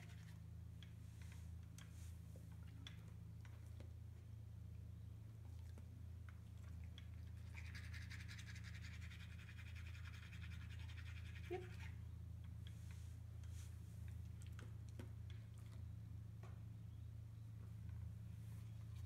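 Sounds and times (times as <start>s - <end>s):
steady low hum: 0.0s - 19.0s
toothbrush scrubbing teeth: 7.2s - 11.9s.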